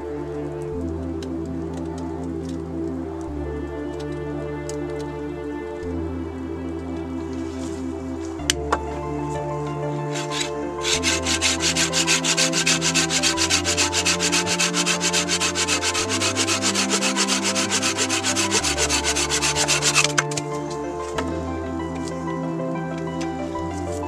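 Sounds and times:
soft background music: 0.0s - 24.0s
hand saw cutting log: 10.1s - 20.4s.

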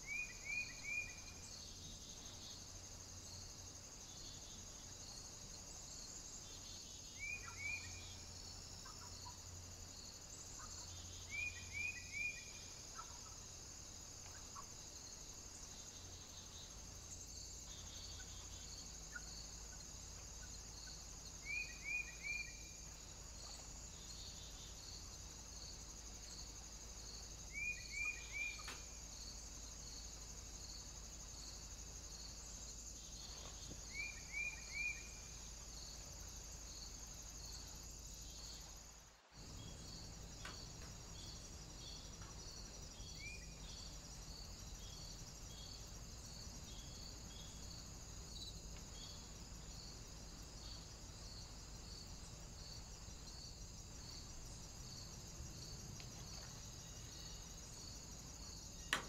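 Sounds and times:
insects chirring: 0.0s - 59.0s
small bird chirping: 7.1s - 8.2s, 27.5s - 29.0s.

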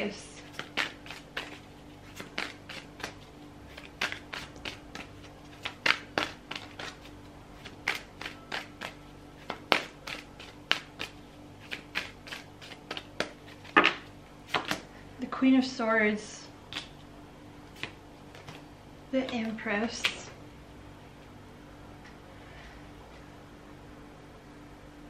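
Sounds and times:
cards being shuffled: 0.4s - 14.9s, 16.7s - 18.7s.

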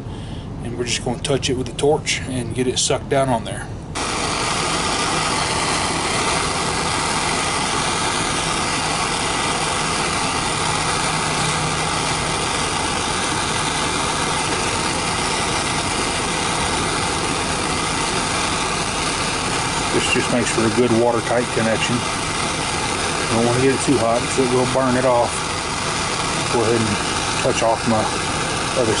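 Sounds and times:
gas torch hissing: 4.0s - 29.0s.

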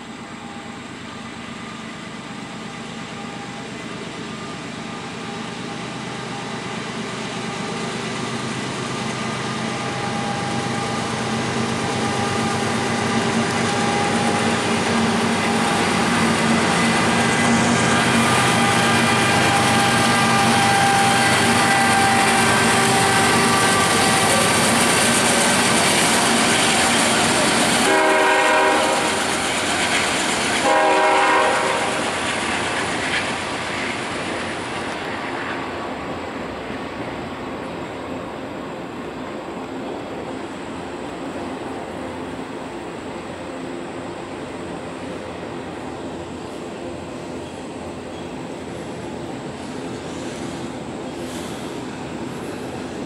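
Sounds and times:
diesel locomotive engine drone: 0.0s - 53.0s
rumble of rolling train cars: 0.0s - 53.0s
locomotive air horn blasts: 17.8s - 24.7s, 27.6s - 29.3s, 30.6s - 32.1s.

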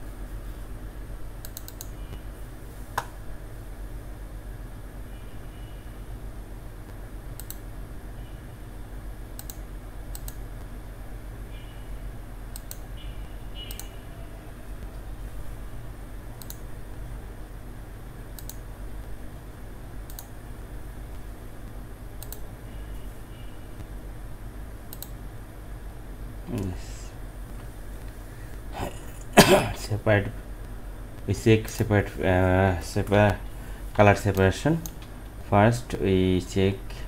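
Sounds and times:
computer mouse clicking: 1.4s - 2.2s, 7.4s - 7.6s, 9.4s - 10.7s, 12.5s - 12.9s, 13.6s - 14.0s, 16.4s - 16.7s, 18.4s - 18.6s, 20.0s - 20.4s, 22.2s - 22.4s, 24.9s - 25.2s, 34.3s - 35.4s.

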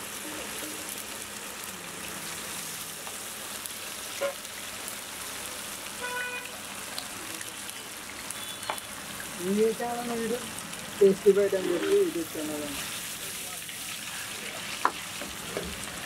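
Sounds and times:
food deep-frying in oil: 0.0s - 16.0s.

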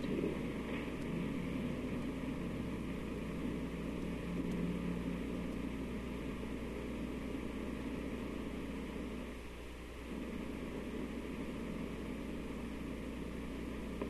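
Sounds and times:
low hum: 0.0s - 14.0s
recording hiss: 0.0s - 14.0s.

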